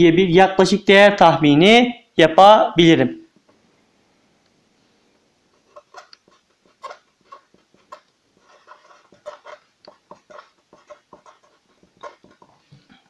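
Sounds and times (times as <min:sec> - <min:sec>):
felt-tip marker squeaking on paper: 0:05.7 - 0:12.7.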